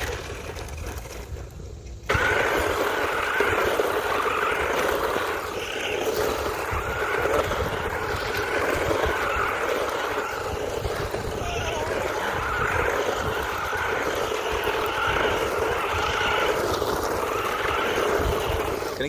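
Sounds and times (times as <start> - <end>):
toy truck motor whining: 2.1 - 19.0
wind rumble on microphone: 4.0 - 19.0.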